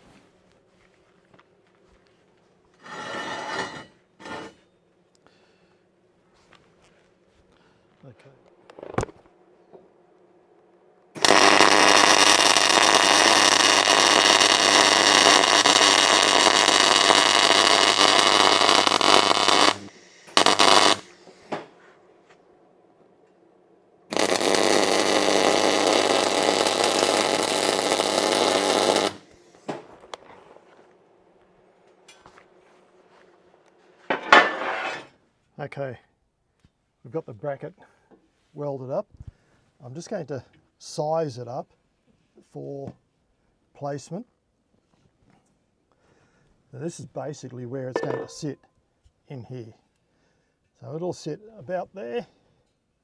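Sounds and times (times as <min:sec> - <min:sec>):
arc welding hiss: 0:11.2 - 0:21.5, 0:24.1 - 0:29.3.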